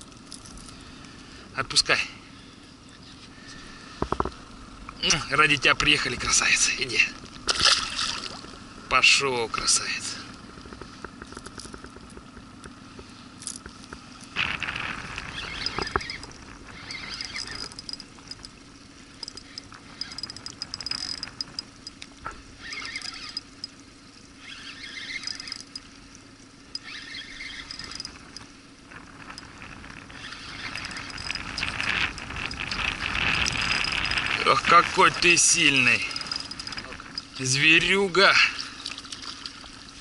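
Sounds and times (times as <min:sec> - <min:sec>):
steady low hum: 0:00.0 - 0:40.0
fishing reel whirring: 0:09.6 - 0:40.0.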